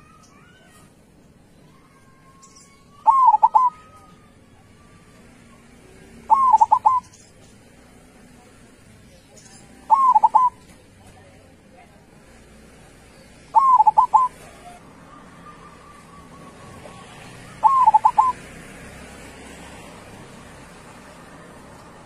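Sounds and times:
dove cooing: 0:03.0 - 0:04.0, 0:06.2 - 0:07.1, 0:09.8 - 0:10.7, 0:13.5 - 0:18.5.

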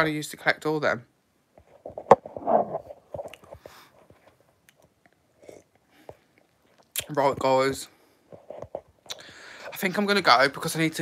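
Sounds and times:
person sipping and swallowing: 0:04.7 - 0:07.1.

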